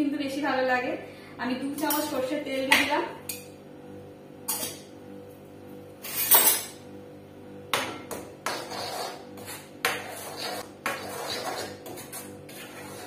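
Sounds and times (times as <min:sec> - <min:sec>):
spoon scraping a metal bowl: 0:08.0 - 0:13.0.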